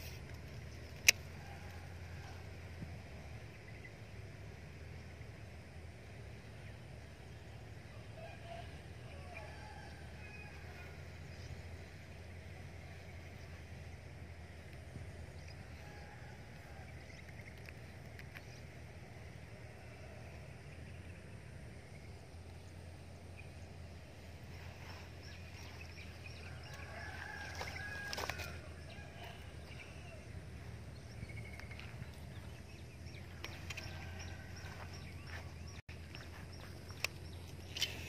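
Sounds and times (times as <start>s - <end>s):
low background hum: 0.0s - 38.0s
bird calls: 7.4s - 38.0s.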